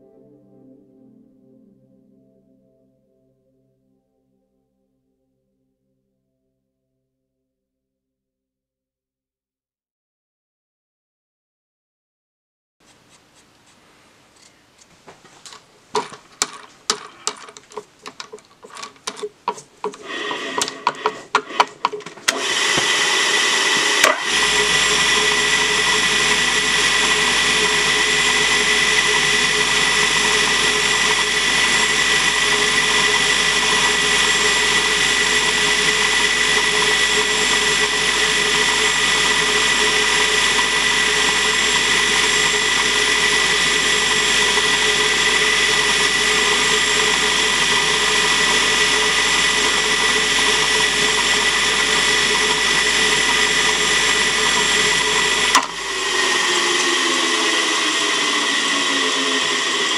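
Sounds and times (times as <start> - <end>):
drill press humming: 14.2 - 59.9.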